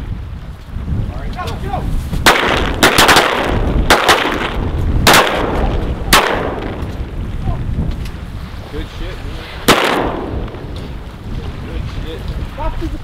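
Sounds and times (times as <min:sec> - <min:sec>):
wind rumble on microphone: 0:00.0 - 0:13.0
shotgun blasts: 0:02.2 - 0:07.0, 0:09.6 - 0:10.8.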